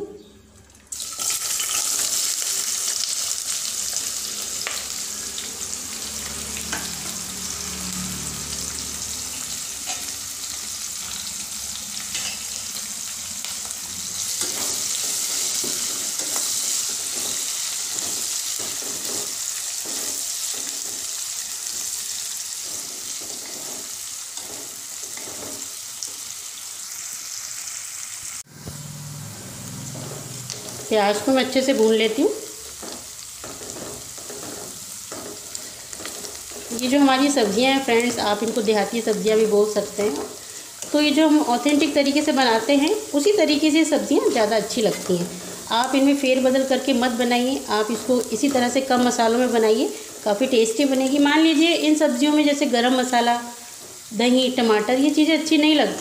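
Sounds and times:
onions sizzling in hot oil: 0.9s - 28.5s, 29.5s - 56.0s
stirring scrape and tap: 14.4s - 21.1s, 22.6s - 26.2s, 32.7s - 36.9s.

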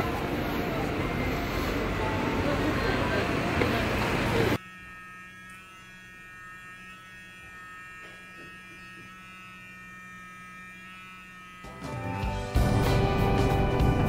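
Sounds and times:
street noise: 0.0s - 4.7s, 11.5s - 14.0s
electric facial massager buzzing: 0.0s - 14.0s.

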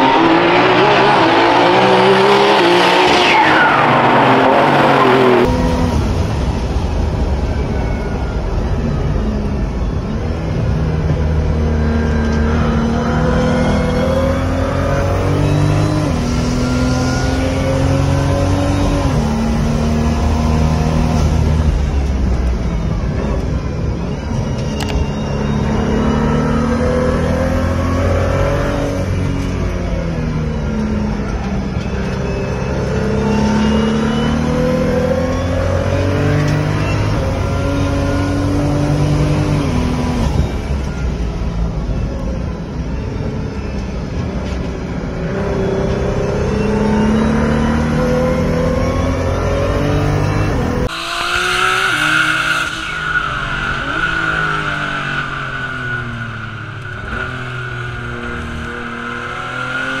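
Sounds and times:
race car engine accelerating: 0.0s - 6.4s, 45.2s - 60.0s
tyre squeal: 23.1s - 29.6s, 45.3s - 60.0s.

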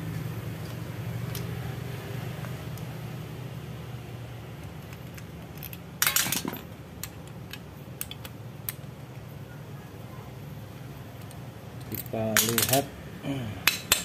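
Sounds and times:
metal parts clinking in pan: 6.0s - 6.6s, 12.0s - 12.8s.

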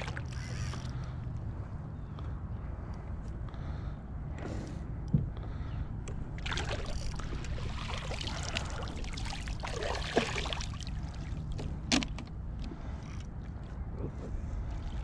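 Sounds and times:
fish splashing in water: 6.4s - 11.3s.

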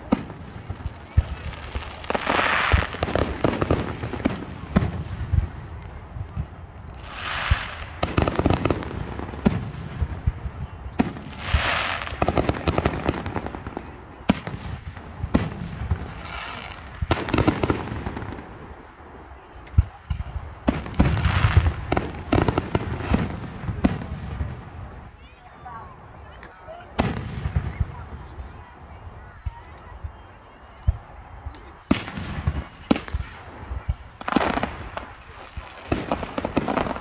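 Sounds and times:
fireworks bursting with sharp bangs: 0.0s - 37.0s.

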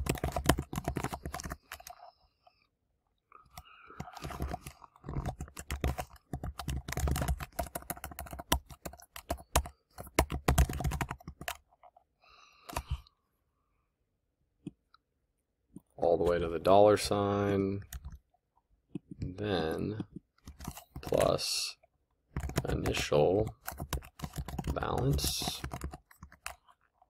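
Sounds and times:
typing on computer keyboard: 0.0s - 2.1s, 3.4s - 11.7s, 17.8s - 18.2s, 19.9s - 21.4s, 22.3s - 26.9s.

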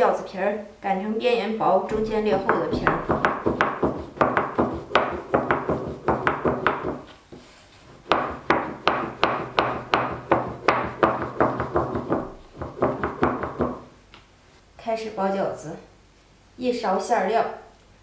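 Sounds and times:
rolling pin knocking on board: 1.9s - 7.1s, 8.0s - 13.9s.

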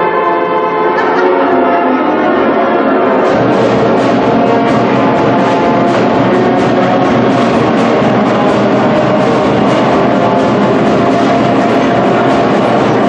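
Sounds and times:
instrumental music with steady beat: 3.2s - 13.0s.

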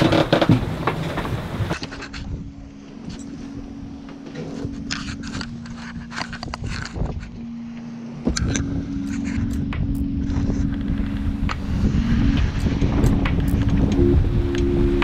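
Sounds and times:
rushing sea: 0.0s - 15.0s
wind: 0.0s - 15.0s.

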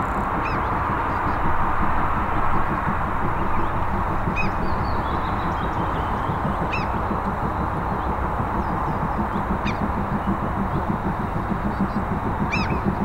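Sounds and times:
distant train rumbling: 0.0s - 13.0s
bird calling: 0.4s - 1.4s, 4.3s - 7.4s, 8.6s - 13.0s.

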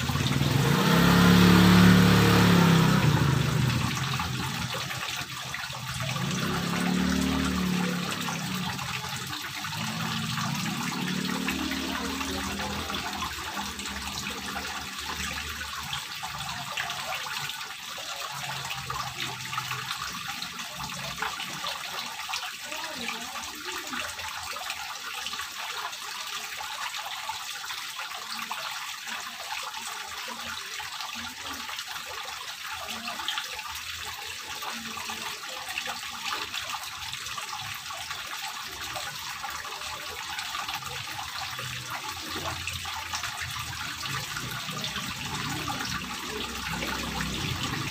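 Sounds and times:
fountain water splashing into pool: 0.0s - 47.9s.

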